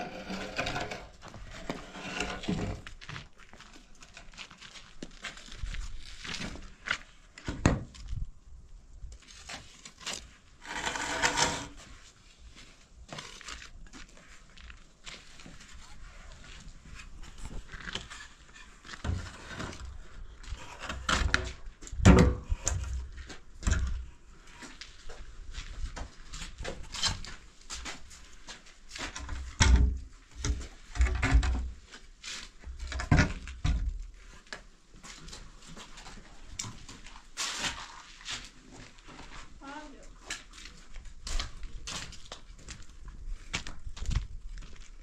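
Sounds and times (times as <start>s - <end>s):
objects knocking and thumping: 20.9s - 22.9s.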